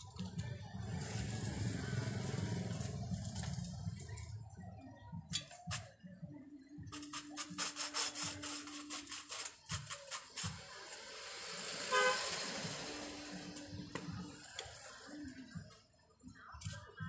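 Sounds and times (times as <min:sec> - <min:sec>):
low traffic rumble: 0:00.0 - 0:04.6, 0:10.6 - 0:14.8.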